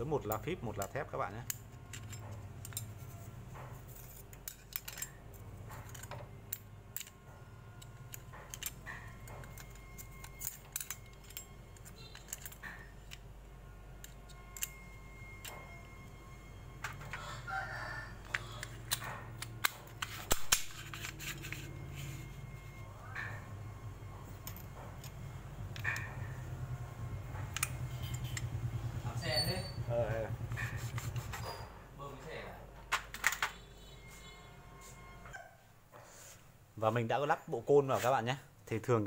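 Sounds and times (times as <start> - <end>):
steady low hum: 0.0 - 32.9
metal clutch plates clicking: 0.2 - 3.0, 3.8 - 7.2, 7.8 - 13.3, 24.3 - 31.2.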